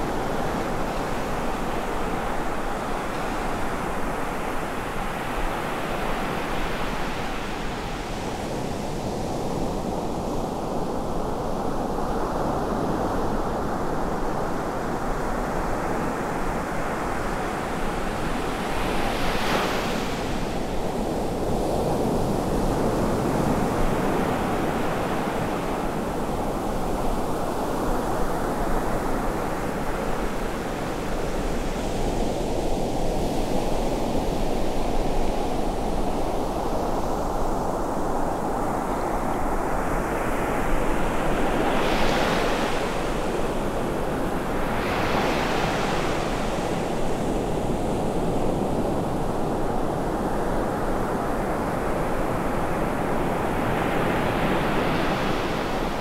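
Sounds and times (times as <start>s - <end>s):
ocean surf breaking on beach: 16.4s - 56.0s.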